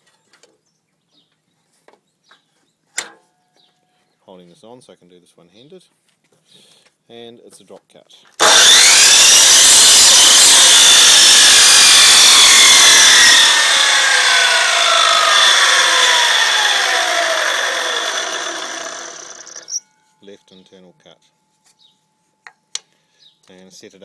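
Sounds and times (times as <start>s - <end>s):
mitre saw cutting wood: 8.4s - 19.8s
saw blade winding down: 8.4s - 19.8s.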